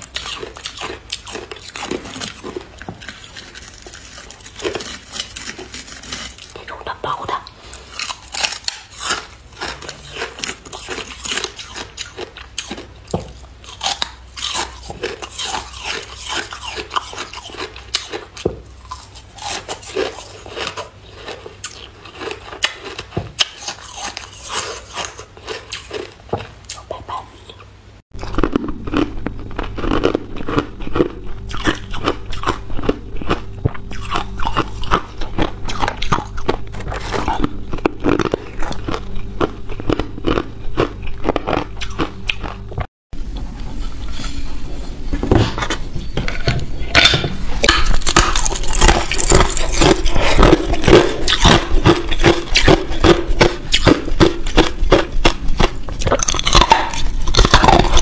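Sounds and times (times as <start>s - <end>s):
crunching and chewing ice: 0.0s - 7.0s, 7.6s - 27.2s, 28.2s - 42.9s, 47.6s - 58.0s
faint steady hum: 0.0s - 58.0s.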